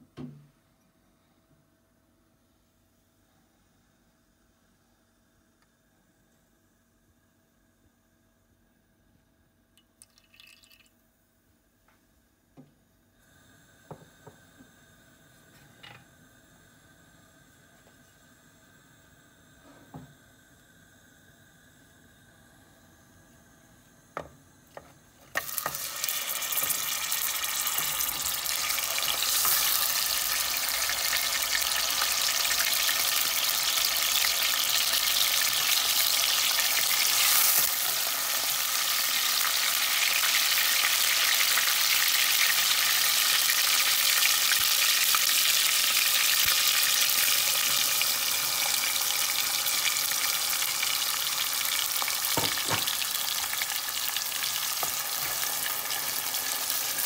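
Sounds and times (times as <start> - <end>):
hot oil sizzling and crackling: 25.2 - 57.0.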